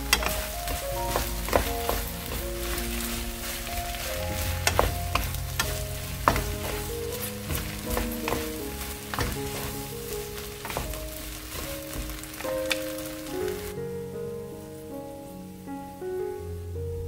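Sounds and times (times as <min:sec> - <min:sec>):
wooden utensils scraping pan: 0:00.0 - 0:13.7
onions sizzling in wok: 0:00.0 - 0:16.0
soft background tune: 0:00.0 - 0:17.0.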